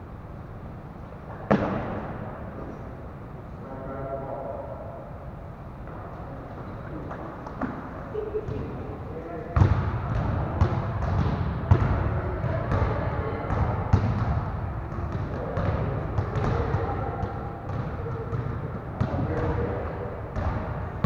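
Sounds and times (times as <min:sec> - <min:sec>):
kids chattering: 0:08.0 - 0:09.2, 0:16.0 - 0:18.3
basketballs bouncing on gym floor: 0:09.6 - 0:21.0.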